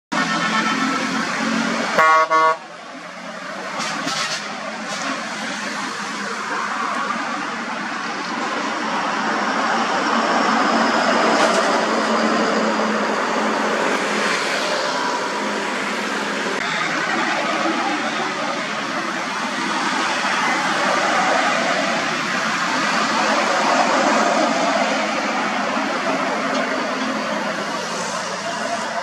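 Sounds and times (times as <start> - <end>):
busy road traffic: 0.1 - 29.0.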